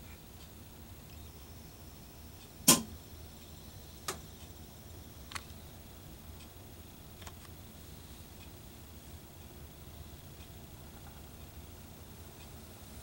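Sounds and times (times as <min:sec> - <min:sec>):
faint low room hum: 0:00.0 - 0:13.0
sharp clicks: 0:05.3 - 0:05.6, 0:07.2 - 0:07.6.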